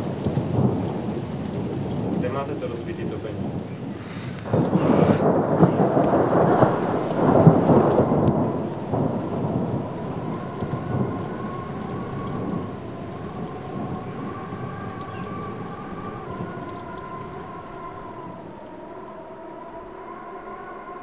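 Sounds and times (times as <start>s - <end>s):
loud rumbling: 4.2s - 18.3s.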